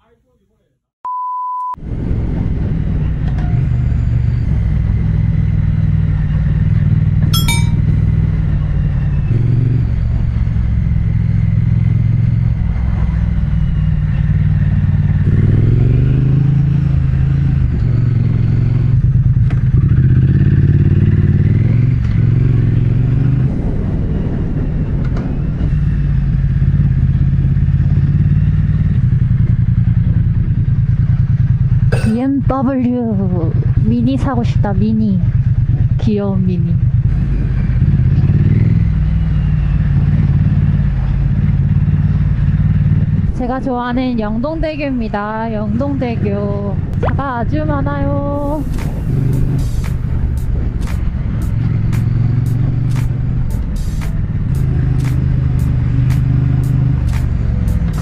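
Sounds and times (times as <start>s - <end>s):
motorcycle engine running: 5.2s - 23.2s, 25.9s - 58.0s
sharp click: 48.7s - 58.0s.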